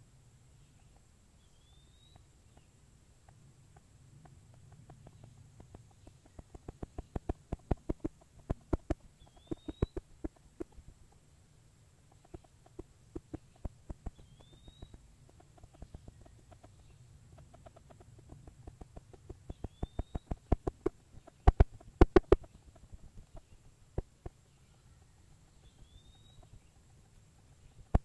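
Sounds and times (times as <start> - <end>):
bird whistle: 9.3 - 10.0, 19.6 - 20.4, 25.8 - 26.5.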